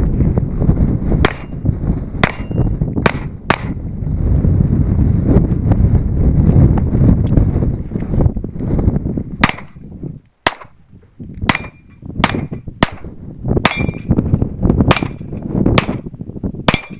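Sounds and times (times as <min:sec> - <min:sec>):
handgun shots: 0:01.3 - 0:01.6, 0:02.2 - 0:03.8, 0:10.5 - 0:10.8, 0:11.5 - 0:14.1, 0:14.9 - 0:16.0
steel plate ringing: 0:02.3 - 0:02.8, 0:11.5 - 0:12.6, 0:13.6 - 0:14.2, 0:16.7 - 0:16.9.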